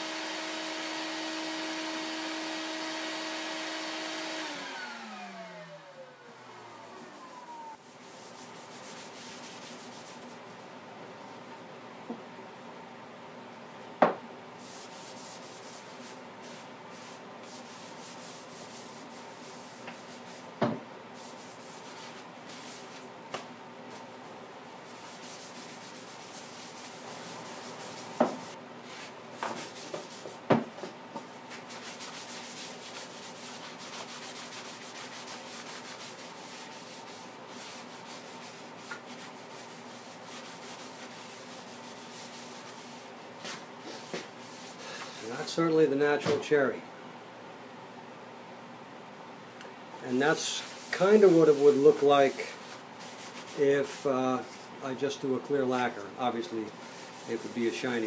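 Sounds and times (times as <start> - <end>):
sandpaper rubbing on wood: 6.9 - 10.3, 14.6 - 20.4, 25.0 - 28.6, 31.5 - 45.4, 50.2 - 54.6, 56.8 - 58.0.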